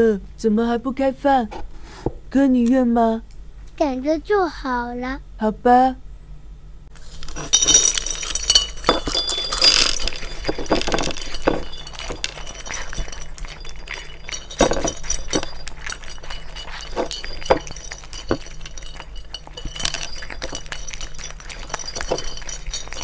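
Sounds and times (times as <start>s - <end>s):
dogs crunching kibble from dishes: 7.0s - 23.0s.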